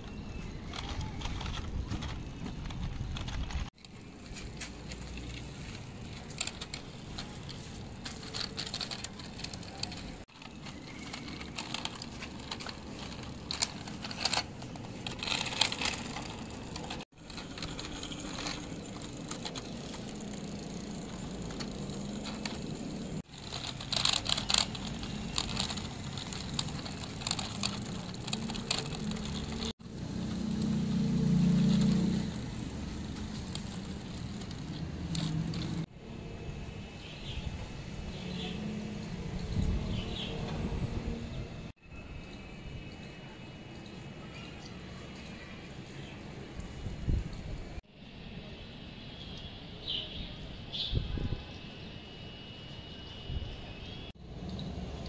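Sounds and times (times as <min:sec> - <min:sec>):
toy wheels rattling on concrete: 0:00.0 - 0:35.9.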